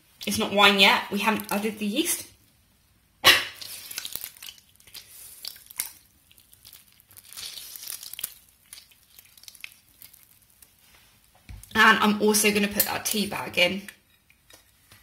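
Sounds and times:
lemon squeezing rustles and clicks: 3.6s - 11.0s.

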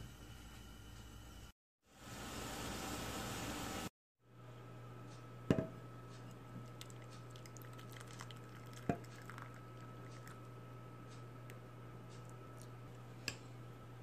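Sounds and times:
steady low hum: 4.2s - 14.0s
cream pouring and splashing: 6.7s - 10.4s.

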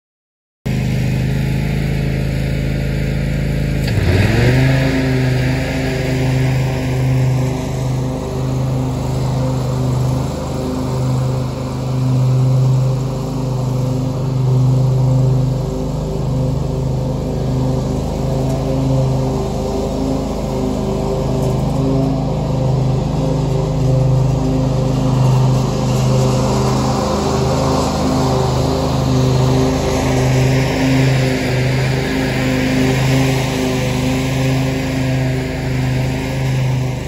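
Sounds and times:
mower engine passing: 0.7s - 37.0s.

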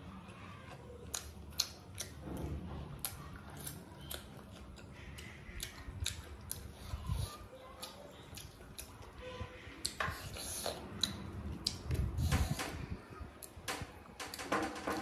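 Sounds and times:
person chewing: 0.6s - 2.2s, 2.9s - 12.6s.

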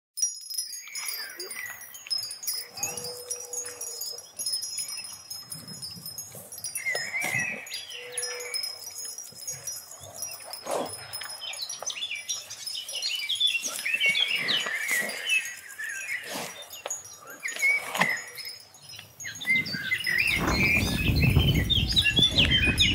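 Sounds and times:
wind chimes ringing: 0.2s - 22.9s
warbling bird-like calls: 2.4s - 4.2s.

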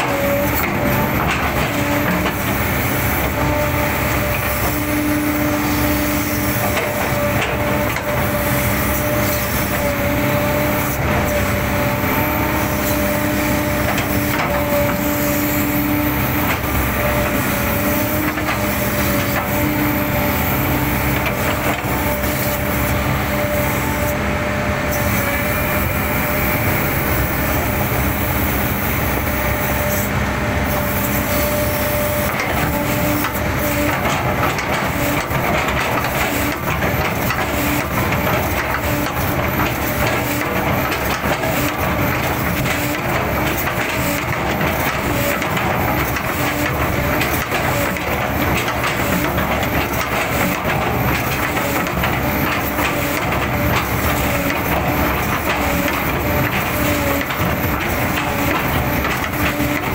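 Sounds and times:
excavator diesel engine: 0.0s - 59.9s
hydraulic whine: 0.0s - 59.9s.

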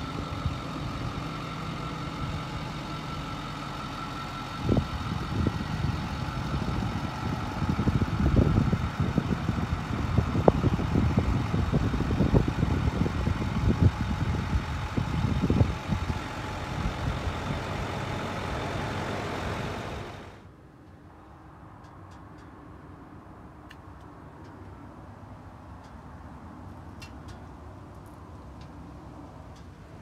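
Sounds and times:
diesel truck engine idling: 0.0s - 20.5s
wind buffeting microphone: 4.6s - 18.2s.

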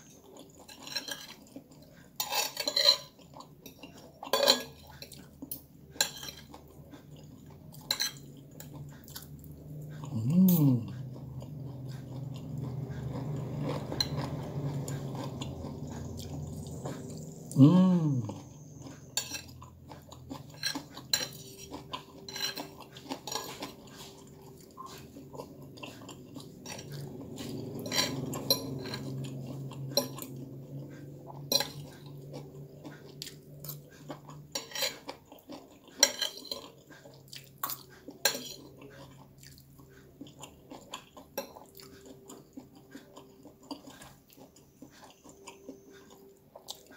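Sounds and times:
cutlery clinking on plate: 3.7s - 5.1s, 36.0s - 36.7s
short falling vocal sound: 17.5s - 18.3s.

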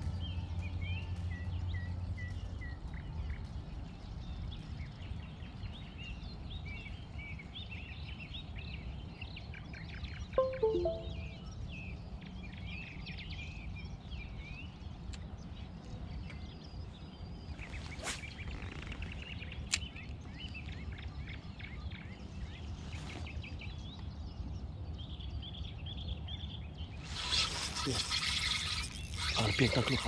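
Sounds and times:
steady low outdoor rumble: 0.0s - 9.7s.

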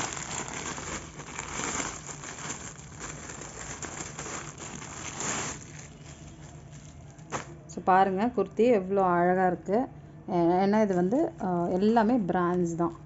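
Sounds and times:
plastic bag crinkling: 0.0s - 7.6s, 10.8s - 12.2s.

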